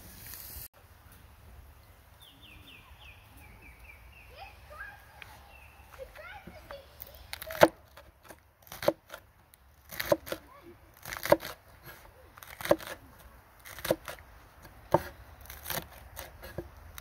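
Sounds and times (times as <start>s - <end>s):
knife chopping on wooden board: 7.5s - 9.2s, 9.9s - 10.4s, 11.0s - 13.0s, 13.7s - 14.2s, 14.9s - 16.7s.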